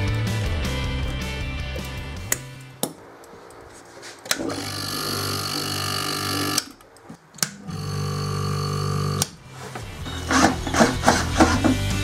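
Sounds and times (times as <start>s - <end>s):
compressor humming: 4.2s - 9.4s.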